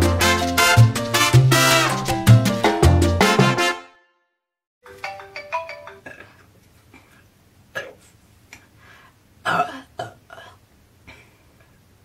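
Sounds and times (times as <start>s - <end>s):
phone timer ringtone melody: 4.9s - 6.0s.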